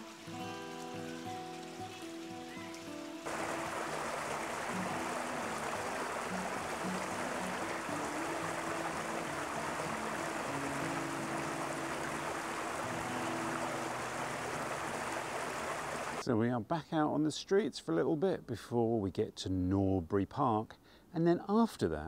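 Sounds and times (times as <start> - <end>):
soft music of low notes: 0.0 - 15.2
water rushing over a weir: 0.0 - 16.2.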